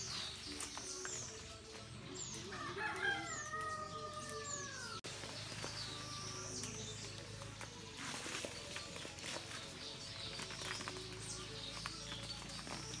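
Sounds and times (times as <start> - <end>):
small birds chirping: 0.0 - 13.0
rooster crowing: 2.5 - 5.0.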